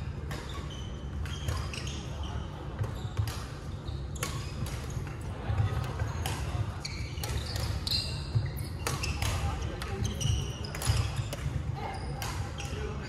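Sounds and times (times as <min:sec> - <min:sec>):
sneakers squeaking on wooden floor: 0:00.3 - 0:05.1, 0:06.0 - 0:13.0
rackets hitting shuttlecocks: 0:08.8 - 0:11.6.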